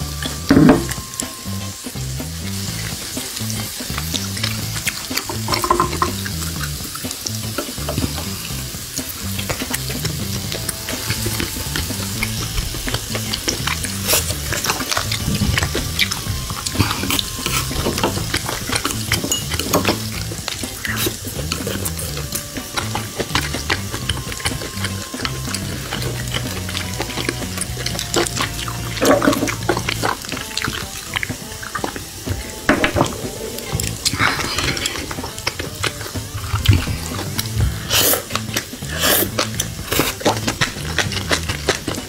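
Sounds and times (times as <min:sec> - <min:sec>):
background music with bass line: 0:00.0 - 0:42.0
beef sizzling on grill plate: 0:00.0 - 0:42.0
chopsticks clicking on plates: 0:04.9 - 0:06.2.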